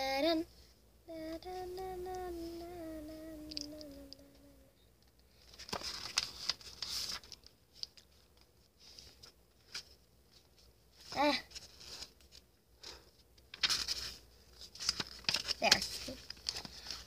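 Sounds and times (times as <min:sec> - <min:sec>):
child's voice: 0:00.0 - 0:00.5, 0:11.1 - 0:11.5, 0:15.6 - 0:16.2
book pages rustling: 0:05.4 - 0:12.5, 0:13.2 - 0:17.0
light paper clicks: 0:13.4 - 0:17.0.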